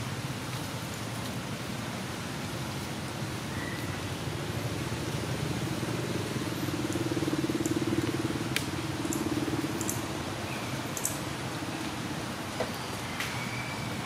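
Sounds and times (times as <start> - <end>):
engine running: 4.3 - 11.1.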